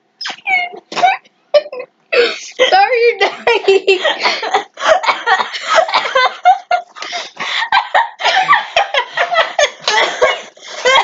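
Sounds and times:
children laughing: 3.3s - 11.0s.

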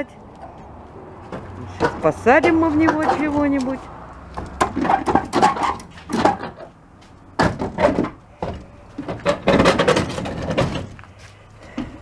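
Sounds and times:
metal knocks and scrapes on concrete: 1.3s - 3.7s, 4.4s - 6.7s, 7.4s - 11.0s.

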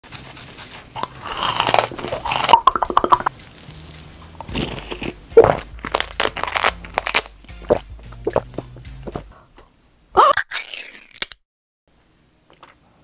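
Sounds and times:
crunching sweets: 0.8s - 3.7s, 4.4s - 9.4s.

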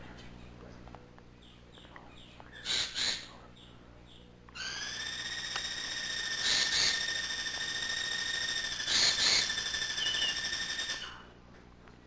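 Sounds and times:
high whistle-like tone: 4.8s - 11.2s.

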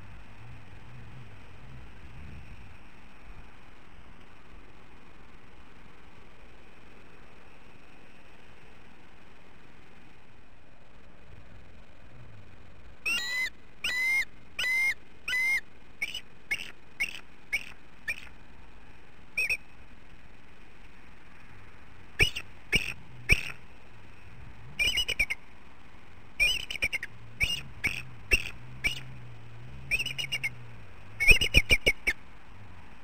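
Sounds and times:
eagle calling high whistles: 13.0s - 18.3s, 19.4s - 19.6s, 22.2s - 23.6s, 24.8s - 25.4s, 26.4s - 29.1s, 29.9s - 30.6s, 31.2s - 32.2s.

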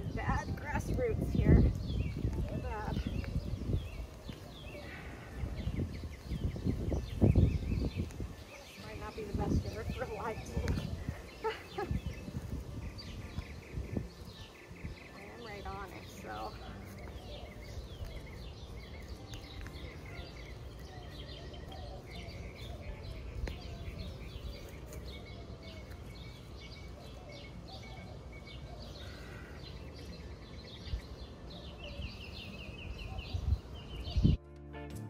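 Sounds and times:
music: 0.0s - 3.1s, 7.5s - 21.8s, 31.3s - 35.0s
small birds chirping: 0.0s - 34.4s.

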